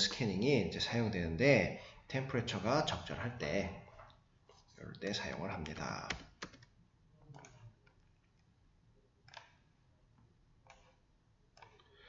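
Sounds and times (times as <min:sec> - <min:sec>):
computer mouse clicks: 0:07.3 - 0:08.5, 0:09.2 - 0:09.7, 0:10.6 - 0:12.0.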